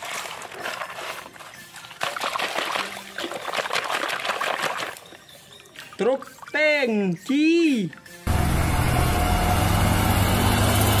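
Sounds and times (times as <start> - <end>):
water splashing and trickling: 0.0 - 8.3.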